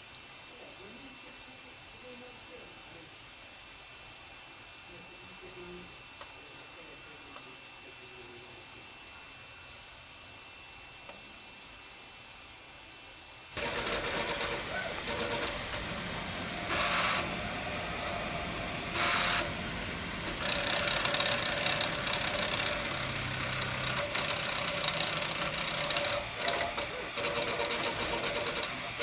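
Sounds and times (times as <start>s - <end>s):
printer stepper motors whirring: 13.5s - 29.0s.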